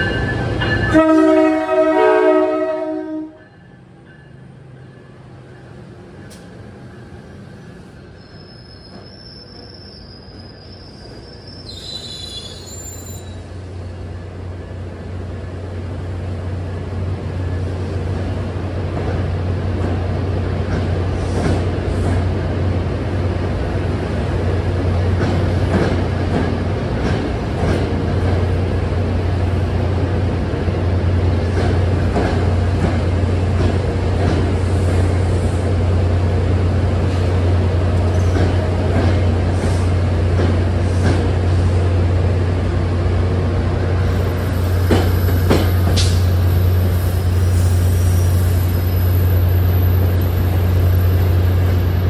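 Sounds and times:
train rumbling past: 0:00.0 - 0:52.0
high-pitched wheel squeals: 0:07.2 - 0:13.5.

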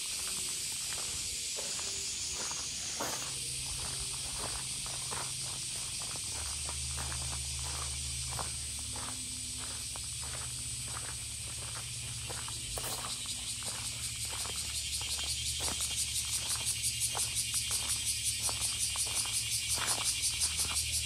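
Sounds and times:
cicadas buzzing: 0:00.0 - 0:21.0.

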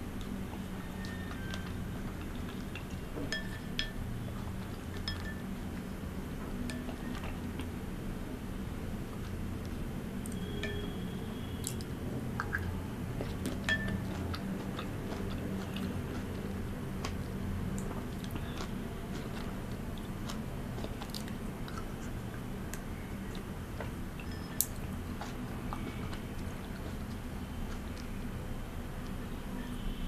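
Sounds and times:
chewing and biting fruit: 0:00.2 - 0:05.4, 0:10.2 - 0:28.3
metal spoon clinking glass bowl: 0:03.3 - 0:04.0, 0:05.0 - 0:05.5, 0:10.4 - 0:11.0, 0:13.6 - 0:14.2, 0:24.2 - 0:24.8.

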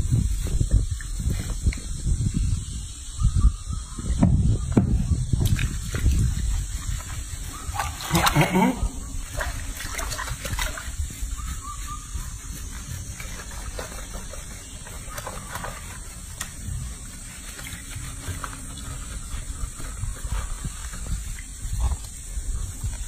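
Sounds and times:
water sloshing in a sink: 0:05.4 - 0:11.4.

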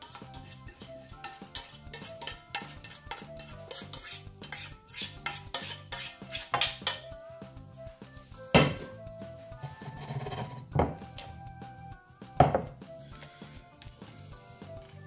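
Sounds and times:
metal spoon scraping a steel pot: 0:00.0 - 0:07.1, 0:09.6 - 0:10.8.

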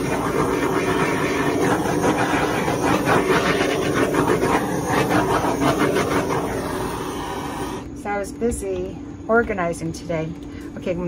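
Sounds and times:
torch flame hissing: 0:00.0 - 0:07.9.

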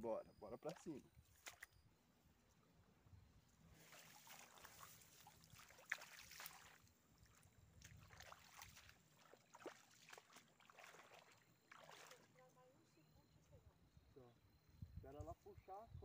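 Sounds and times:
river water lapping at bank: 0:00.5 - 0:01.9, 0:03.7 - 0:12.8.

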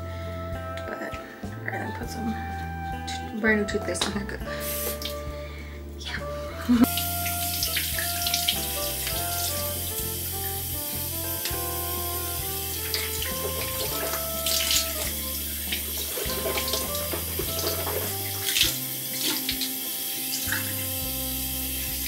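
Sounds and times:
background music of held notes: 0:00.0 - 0:22.0
water running from sink tap: 0:04.0 - 0:05.3, 0:06.1 - 0:22.0
water splashing: 0:04.5 - 0:05.3, 0:06.0 - 0:22.0.

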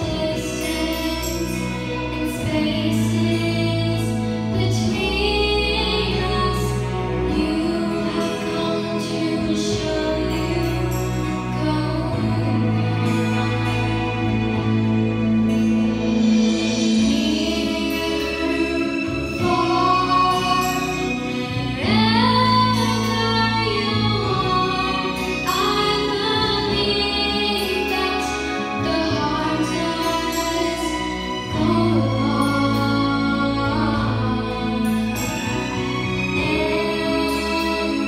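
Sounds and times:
instrumental backing track: 0:00.0 - 0:38.0
girl singing into a microphone: 0:19.4 - 0:20.8, 0:21.7 - 0:35.0.

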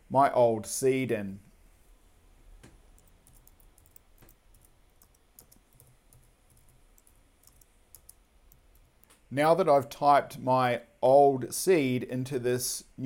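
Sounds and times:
faint keyboard typing: 0:02.6 - 0:09.2.

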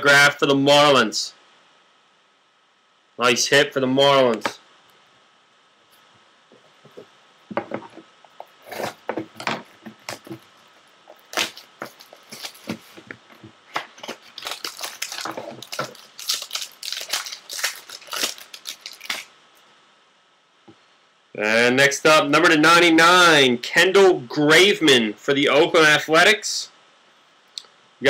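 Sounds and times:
foil wrapper tearing and crinkling: 0:08.6 - 0:09.1, 0:11.1 - 0:13.0, 0:13.7 - 0:19.3.

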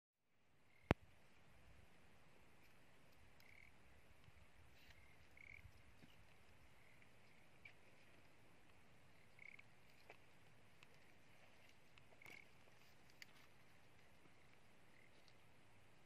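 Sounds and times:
frog chirps: 0:00.6 - 0:01.0, 0:03.4 - 0:05.8, 0:06.7 - 0:07.8, 0:09.1 - 0:09.8, 0:12.1 - 0:12.6, 0:14.3 - 0:15.2.

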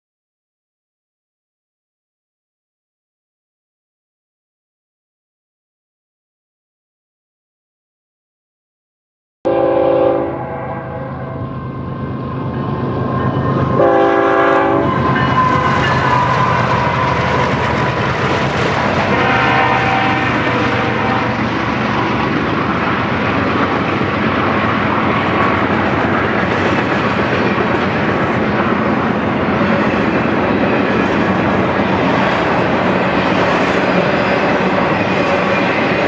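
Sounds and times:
train horn: 0:09.5 - 0:12.2, 0:13.7 - 0:17.6, 0:18.9 - 0:22.3
train wheels rumbling on rails: 0:10.8 - 0:36.0
locomotive engines running: 0:11.1 - 0:36.0.

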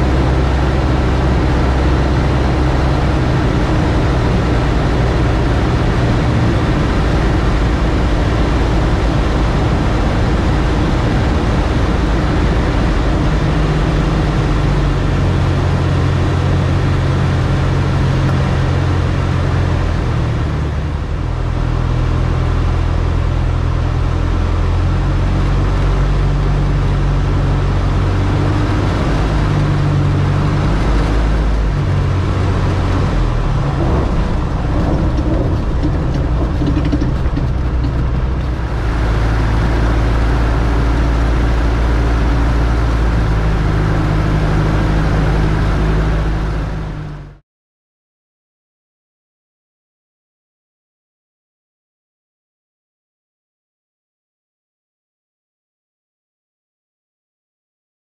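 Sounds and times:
light airplane engine and propeller: 0:00.0 - 0:47.4
wind rush: 0:27.6 - 0:46.9.

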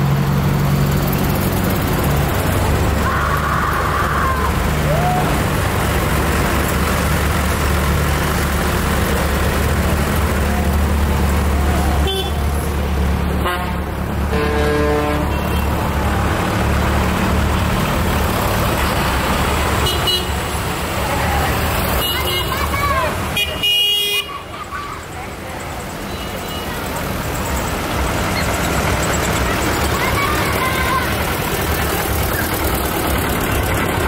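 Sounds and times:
tractor diesel engines running: 0:00.0 - 0:34.0
vehicle horn: 0:12.0 - 0:12.4, 0:13.4 - 0:15.7, 0:19.8 - 0:20.4, 0:23.4 - 0:24.3.

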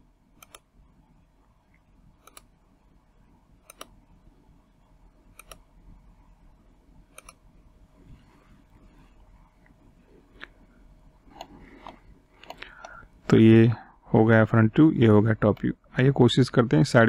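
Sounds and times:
low steady hum: 0:00.0 - 0:17.0
computer mouse clicks: 0:00.4 - 0:00.7, 0:02.2 - 0:02.6, 0:03.6 - 0:04.0, 0:05.3 - 0:05.7, 0:07.1 - 0:07.4, 0:11.3 - 0:13.0.

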